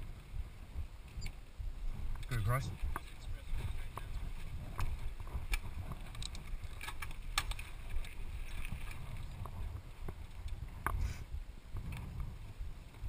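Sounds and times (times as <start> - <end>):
wind rumble on camera: 0.0 - 13.0
bike rattling over gravel: 1.9 - 10.9.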